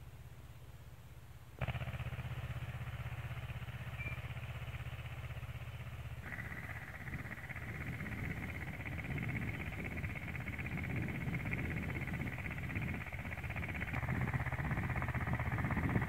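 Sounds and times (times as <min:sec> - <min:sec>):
tractor engine chugging: 0:01.6 - 0:16.0.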